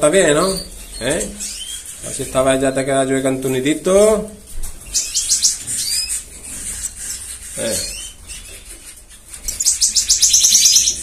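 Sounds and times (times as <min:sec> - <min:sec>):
finches chirping and trilling: 0:00.0 - 0:04.2, 0:04.8 - 0:11.0.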